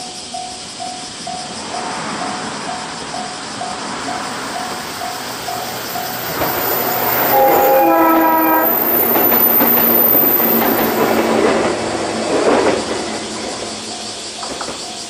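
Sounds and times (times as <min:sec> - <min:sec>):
level-crossing bell ringing: 0:00.0 - 0:11.2
train wheels clattering on rail joints: 0:00.3 - 0:15.0
electric train horn: 0:06.1 - 0:09.4.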